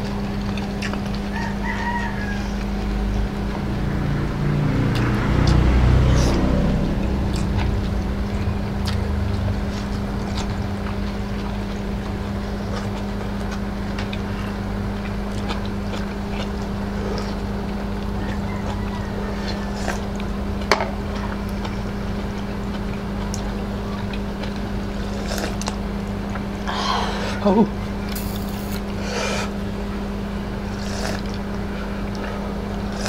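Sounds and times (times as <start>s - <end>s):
eating noises: 0.0s - 33.0s
machine humming and rumbling: 0.0s - 33.0s.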